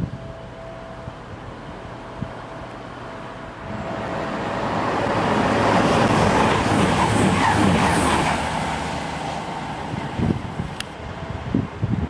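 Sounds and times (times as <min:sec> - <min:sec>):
passenger train passing at speed: 0:00.0 - 0:12.0.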